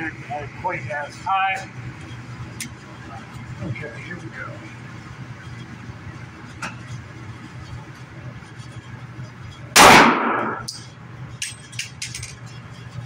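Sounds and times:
low steady hum: 0.0s - 13.0s
pistol shot echoing indoors: 9.8s - 10.8s.

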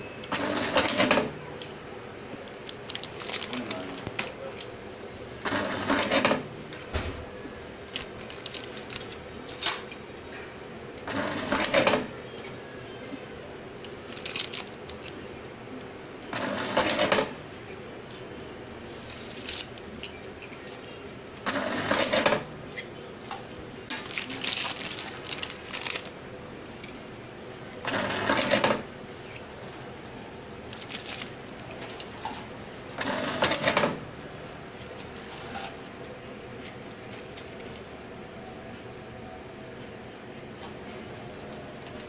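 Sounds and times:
taping machine running: 0.2s - 1.3s, 5.4s - 7.1s, 11.0s - 12.1s, 16.3s - 17.3s, 21.4s - 22.5s, 27.8s - 28.9s, 30.7s - 34.0s.

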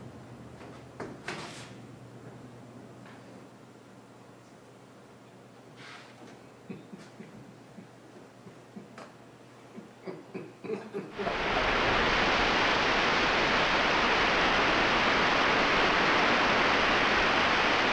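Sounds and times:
loud static hiss: 11.1s - 17.9s.

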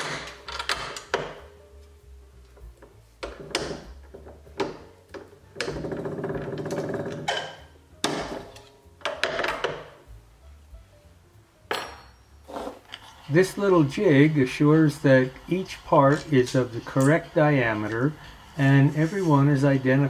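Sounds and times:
hand cranking machine: 5.6s - 7.6s.

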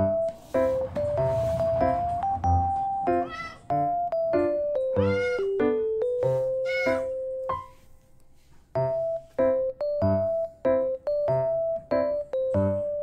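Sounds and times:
piano music: 0.0s - 8.1s, 8.7s - 13.0s
cat meowing: 3.1s - 3.7s, 5.0s - 5.5s, 6.6s - 7.1s.

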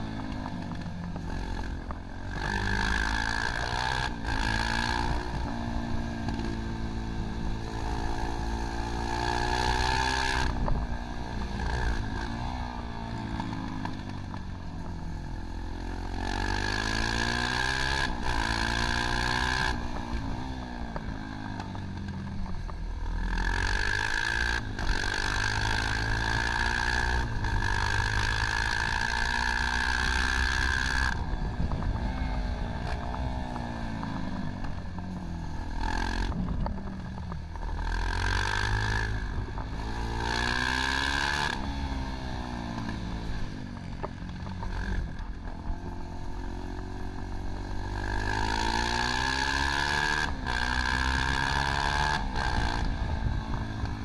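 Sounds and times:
motorcycle engine revving: 0.0s - 54.0s
rushing wind: 21.9s - 54.0s.

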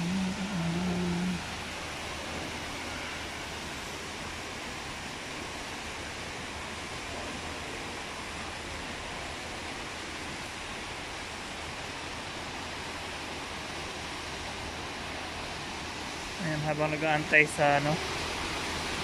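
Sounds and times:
low hum of large hall: 0.0s - 1.8s.

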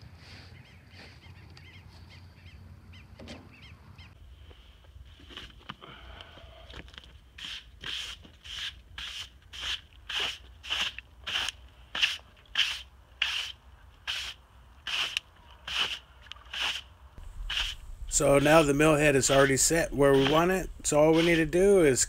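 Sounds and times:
brush sweeping across wood: 7.4s - 22.0s.

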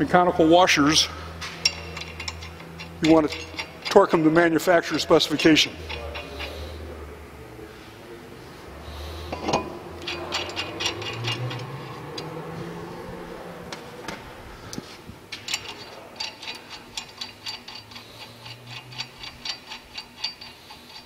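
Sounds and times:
lug nuts clicking on studs: 1.4s - 6.6s, 9.3s - 12.4s, 14.8s - 21.0s.

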